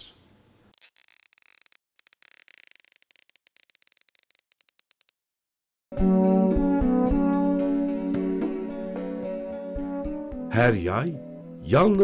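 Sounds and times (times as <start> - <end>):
hand tool clicking and scratching: 0.7 - 5.2.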